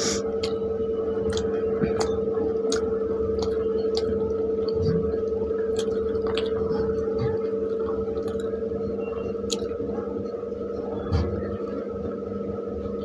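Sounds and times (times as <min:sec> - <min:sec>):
steady hum: 0:00.0 - 0:13.0
chewing: 0:01.2 - 0:08.6.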